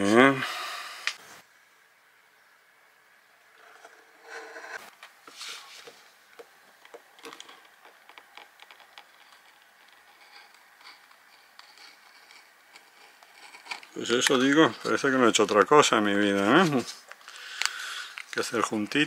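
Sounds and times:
faint clicks and scrapes on paper: 6.9 - 15.1.

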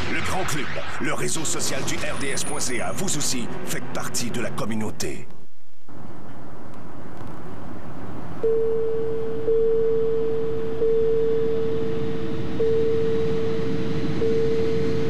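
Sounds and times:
airliner cabin drone: 0.0 - 15.0
electronic cabin sign tone: 8.4 - 15.0.

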